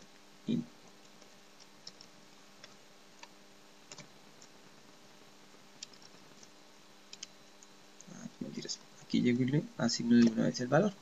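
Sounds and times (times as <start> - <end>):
faint steady hum: 0.0 - 11.0
faint keyboard keystrokes: 1.0 - 4.5, 7.1 - 8.2, 10.1 - 10.5.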